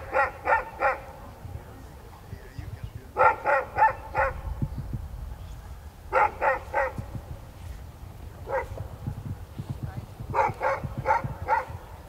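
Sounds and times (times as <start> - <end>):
dog barking: 0.0 - 1.2, 3.2 - 4.6, 6.1 - 7.1, 8.4 - 8.8, 10.3 - 11.8.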